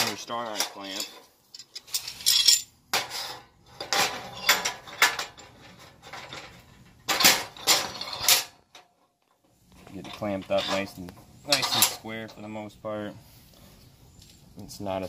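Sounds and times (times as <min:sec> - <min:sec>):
metal clanking on steel table: 0:00.0 - 0:08.9, 0:10.0 - 0:12.1.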